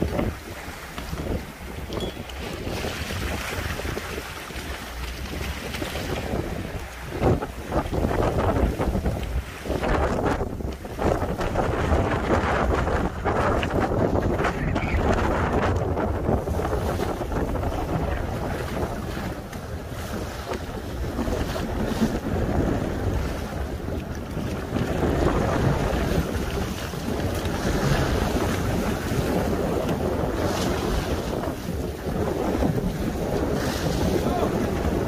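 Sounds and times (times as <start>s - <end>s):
sea washing against boat hull: 0.0s - 35.0s
strong wind on microphone: 0.0s - 35.0s.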